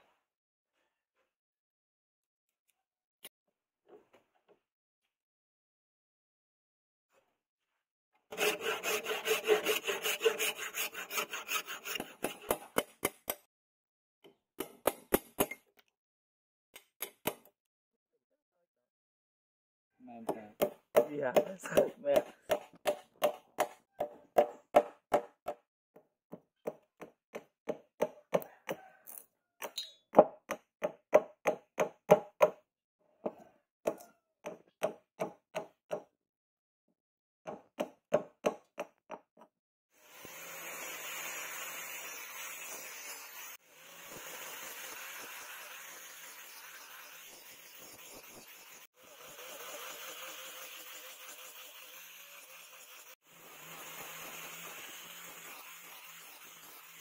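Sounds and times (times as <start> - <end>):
angle grinder sanding wood: 8.3 - 12.7, 40.0 - 57.0
hatchet chopping wood: 11.9 - 13.4, 14.6 - 15.6, 16.8 - 17.5, 20.3 - 25.6, 30.2 - 32.6, 33.9 - 36.1.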